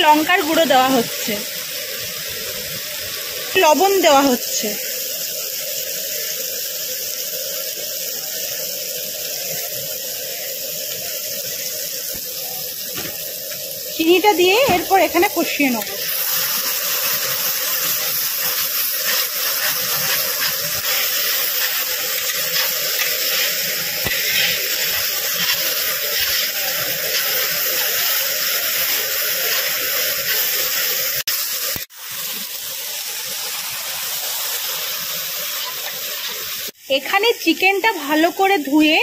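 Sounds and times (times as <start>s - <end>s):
spice paste sizzling in hot oil: 0.0s - 39.0s
metal spatula stirring: 17.8s - 28.0s.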